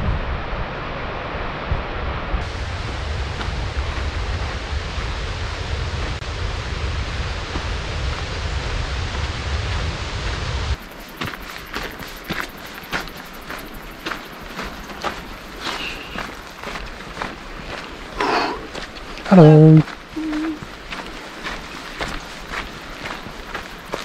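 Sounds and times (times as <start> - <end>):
wind buffeting microphone: 0.0 - 24.0
footsteps crunching on gravel: 10.8 - 24.0.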